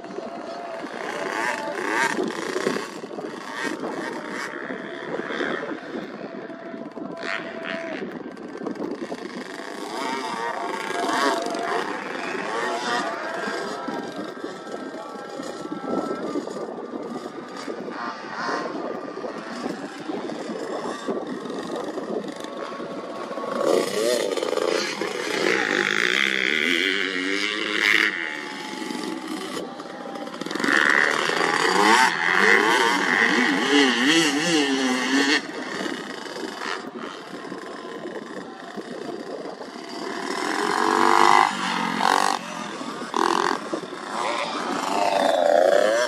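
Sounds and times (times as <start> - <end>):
dirt bike engine revving: 0.0 - 46.0
steady engine drone: 0.0 - 46.0
engine revving up and down: 17.2 - 37.4.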